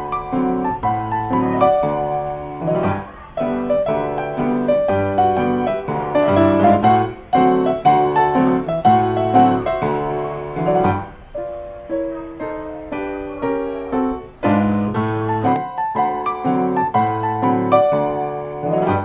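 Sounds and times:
ragtime piano piece: 0:00.0 - 0:19.0.

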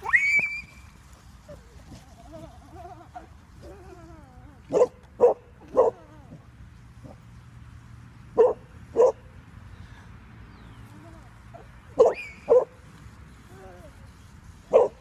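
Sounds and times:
dog barking: 0:04.7 - 0:06.0, 0:08.4 - 0:09.2.

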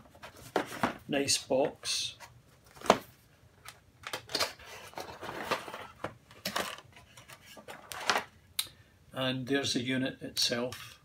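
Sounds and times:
cardboard rustling and scraping: 0:00.0 - 0:01.0, 0:04.6 - 0:08.3.

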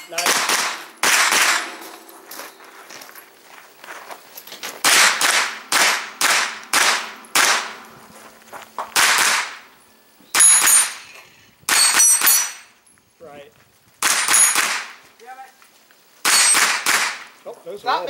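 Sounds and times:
steel targets ringing: 0:00.0 - 0:03.3, 0:11.7 - 0:12.8
carbine gunshots: 0:00.1 - 0:02.2, 0:04.8 - 0:07.9, 0:08.9 - 0:09.7, 0:10.3 - 0:11.1, 0:11.7 - 0:12.6, 0:14.0 - 0:15.0, 0:16.2 - 0:17.4.

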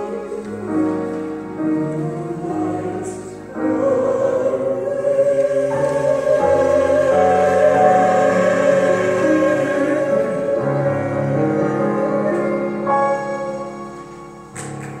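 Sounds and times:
church choir singing: 0:00.0 - 0:14.4
keyboard accompaniment: 0:00.0 - 0:15.0.

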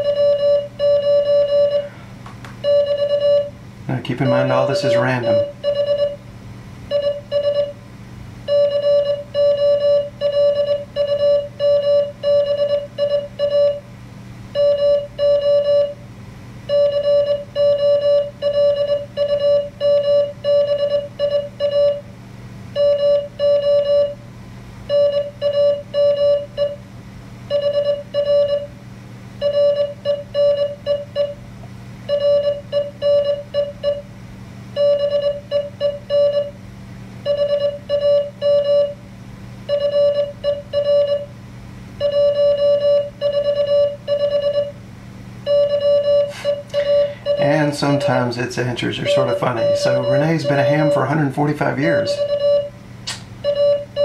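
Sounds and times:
morse code beeps: 0:00.0 - 0:01.9, 0:02.6 - 0:03.5, 0:04.1 - 0:06.2, 0:06.9 - 0:07.8, 0:08.5 - 0:13.8, 0:14.6 - 0:16.0, 0:16.7 - 0:22.0, 0:22.8 - 0:24.2, 0:24.9 - 0:26.8, 0:27.5 - 0:28.7, 0:29.4 - 0:31.4, 0:32.1 - 0:34.1, 0:34.8 - 0:36.6, 0:37.3 - 0:39.0, 0:39.7 - 0:41.3, 0:42.0 - 0:44.8, 0:45.5 - 0:52.8, 0:53.4 - 0:54.0
low steady hum: 0:00.0 - 0:54.0.

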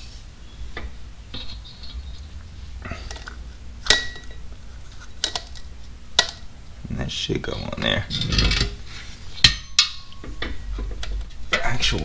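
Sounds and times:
low steady hum: 0:00.0 - 0:12.0
metallic clink: 0:09.4 - 0:10.4.

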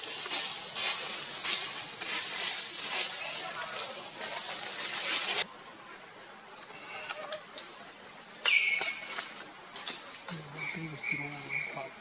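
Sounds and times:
hiss: 0:00.0 - 0:05.5
insects droning: 0:00.0 - 0:12.0.

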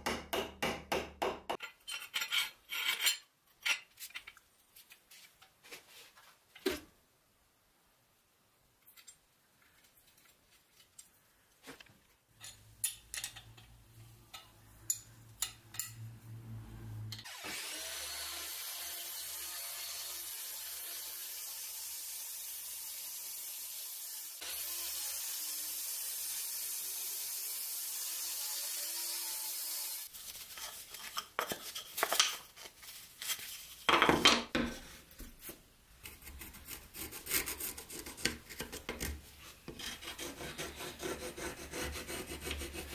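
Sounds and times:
miter saw cutting wood: 0:17.2 - 0:30.1.

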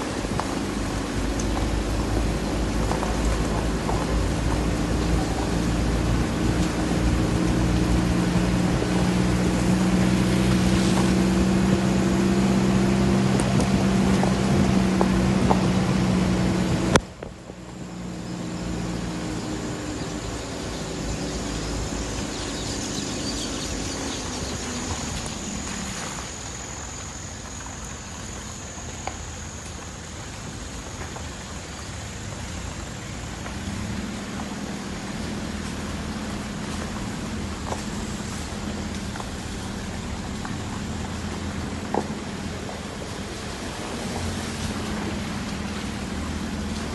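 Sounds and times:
vehicle engine hum and road noise: 0:00.0 - 0:46.9.

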